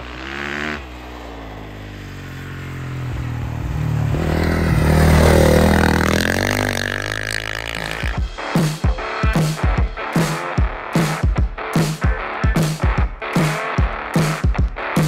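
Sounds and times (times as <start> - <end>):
dirt bike engine revving: 0.0 - 8.2.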